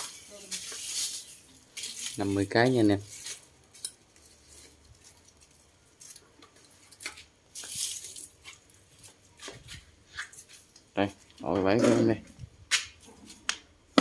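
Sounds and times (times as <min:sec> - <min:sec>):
plastic sack rustling: 0:00.0 - 0:10.7.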